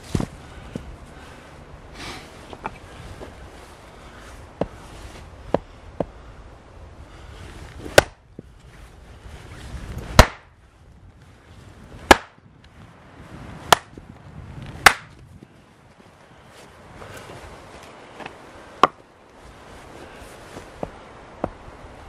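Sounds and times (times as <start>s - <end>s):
axe strikes splitting log: 7.9s - 8.2s, 10.2s - 10.5s, 12.1s - 12.4s, 13.7s - 13.9s, 14.8s - 15.1s
axe tapping log: 7.9s - 8.2s, 10.2s - 10.5s, 12.1s - 12.4s, 13.7s - 13.9s, 14.8s - 15.1s, 18.2s - 19.0s, 20.8s - 21.6s.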